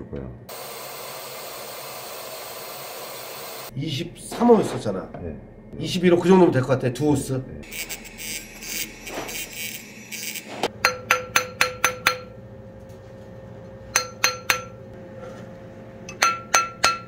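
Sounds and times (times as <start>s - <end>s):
mallet tapping ring on steel mandrel: 10.8s - 12.3s, 14.0s - 14.8s, 16.1s - 17.0s.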